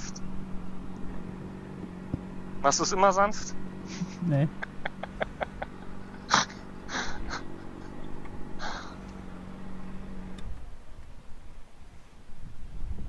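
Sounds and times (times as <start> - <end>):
motorcycle engine idling: 0.0 - 12.6
handling clicks and rustles: 0.2 - 11.4.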